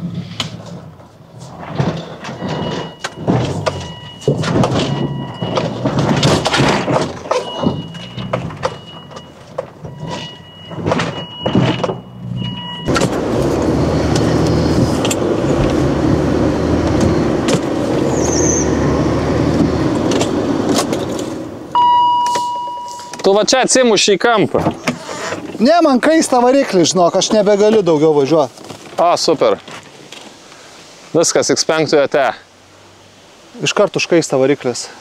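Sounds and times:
car engine under load: 0.0 - 30.7
suspension knocking and thumping: 0.3 - 21.7
short high beeps: 21.8 - 23.4.

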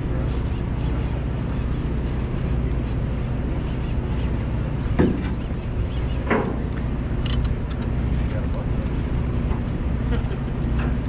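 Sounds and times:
boat engine drone: 0.0 - 11.0.

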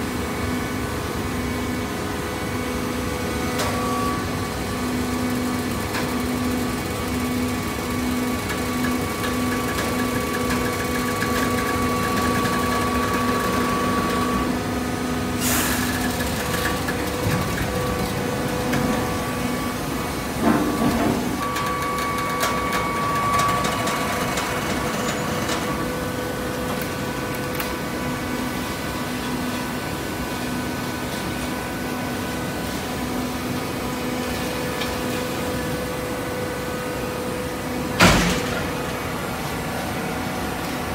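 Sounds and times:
baler hydraulic hum with whine: 11.4 - 40.9.

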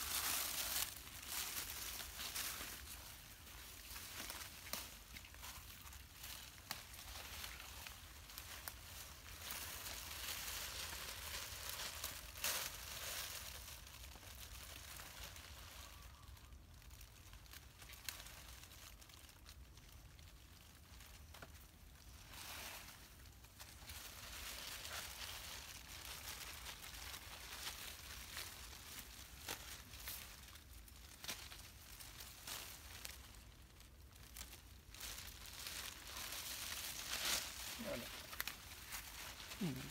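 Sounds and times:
leaves and twigs rustling: 0.0 - 39.9.

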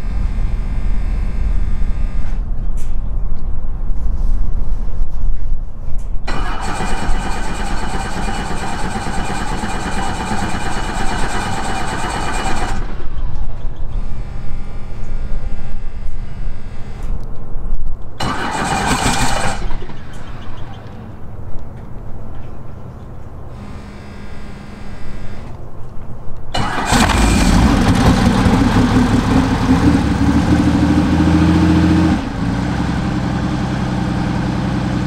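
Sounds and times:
helicopter engine starting: 6.3 - 13.2, 18.2 - 21.0, 26.6 - 35.0
helicopter rotor turning: 6.3 - 13.4.

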